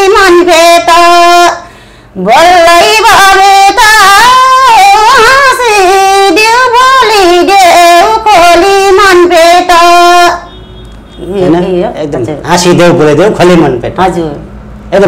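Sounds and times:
woman singing unaccompanied: 0.0s - 1.6s, 2.2s - 10.4s.

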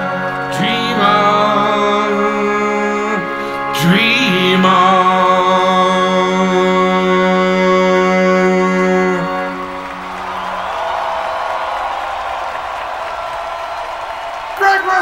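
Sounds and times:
man singing a long note: 0.0s - 9.8s
musical accompaniment: 0.0s - 14.6s
audience applause: 9.1s - 15.0s.

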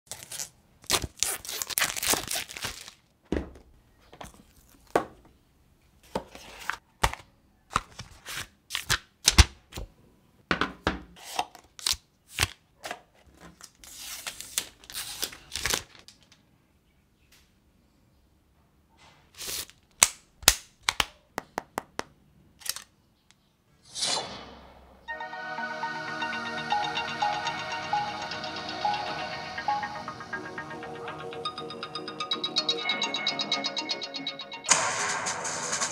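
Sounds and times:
plastic rustling and tearing: 0.1s - 3.1s, 13.3s - 16.4s.

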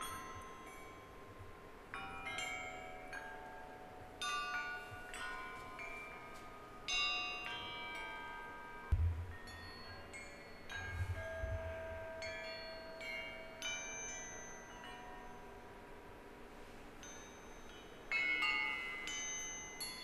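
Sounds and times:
metal hammers ringing like chimes: 0.0s - 15.8s, 17.0s - 20.0s
dull low thump: 8.9s - 9.5s.

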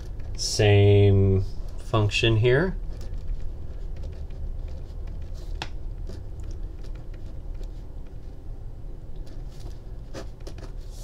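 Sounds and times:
low steady hum: 0.0s - 11.0s
pen scratching on paper: 2.8s - 8.4s, 9.3s - 11.0s.

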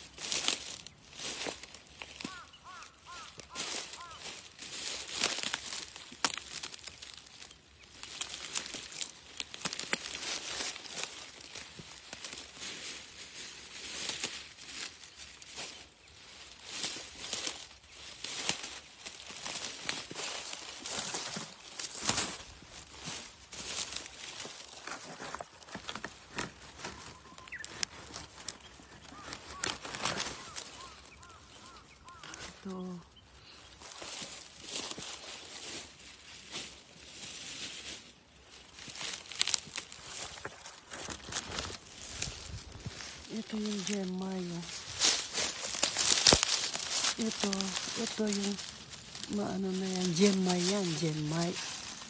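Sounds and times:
dry grass rustling and crackling: 0.0s - 52.0s
brittle stems snapping: 1.2s - 12.4s, 16.7s - 32.5s, 38.8s - 51.0s.

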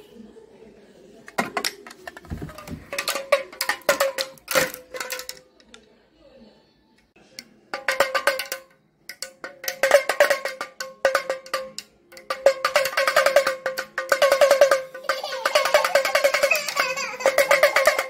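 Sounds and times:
pellet drum rattle clicking: 7.8s - 18.0s.

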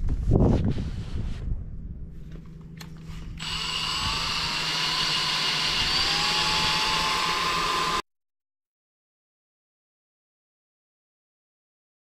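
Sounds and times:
cordless drill whining: 3.4s - 8.0s.

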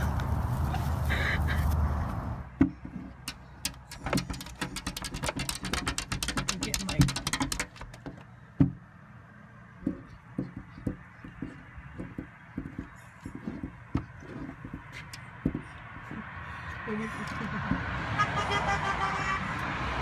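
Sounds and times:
dog teeth clicking on glass: 3.3s - 8.0s.

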